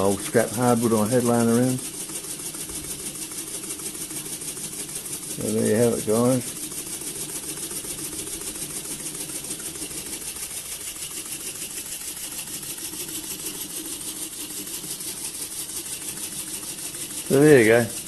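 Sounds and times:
model steam engine chuffing: 0.0 - 18.0.

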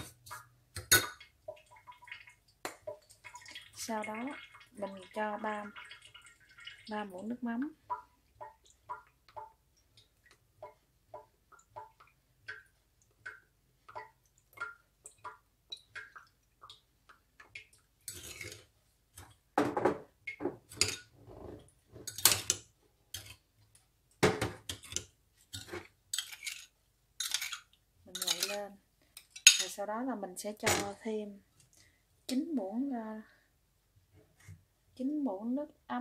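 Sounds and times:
spoon clinking and scraping bowl: 18.1 - 18.7, 20.7 - 21.1, 24.6 - 28.6, 29.2 - 29.7.

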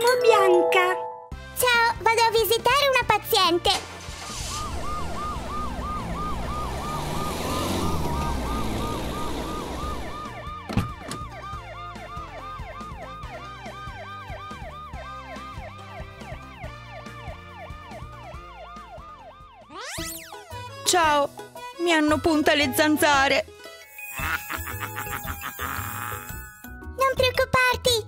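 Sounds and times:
rushing noise: 4.0 - 10.2
warbling siren: 4.1 - 20.5.

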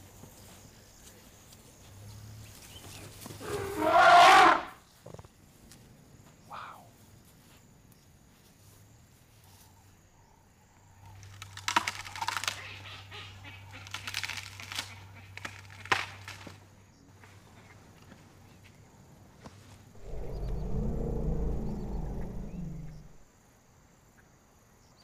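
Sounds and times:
low steady hum: 20.0 - 23.2.

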